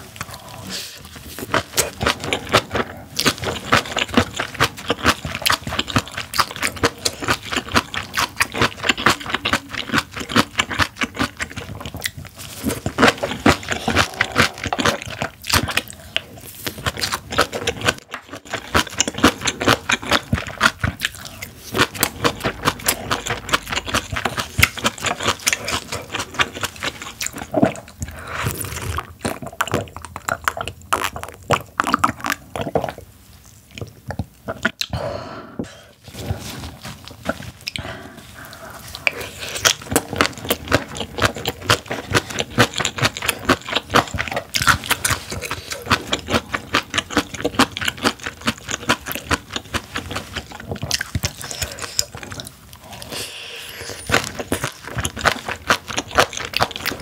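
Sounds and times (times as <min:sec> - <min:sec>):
chewing crunchy food: 0:00.0 - 0:35.0, 0:36.0 - 0:57.0
wet mouth sounds: 0:00.0 - 0:57.0.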